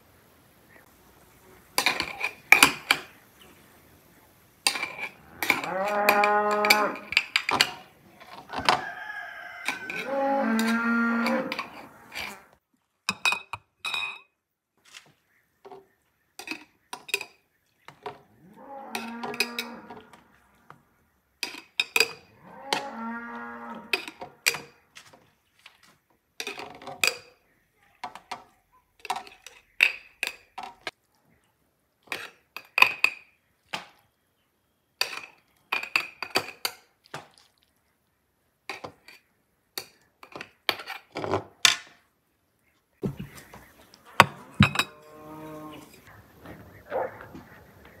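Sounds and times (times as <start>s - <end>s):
spoon clinking against glass jars: 4.7s - 7.8s, 13.1s - 14.3s, 21.4s - 22.3s, 35.0s - 36.8s
cow mooing: 5.2s - 7.1s, 9.6s - 12.5s, 18.4s - 20.6s, 22.4s - 24.1s, 44.3s - 46.1s.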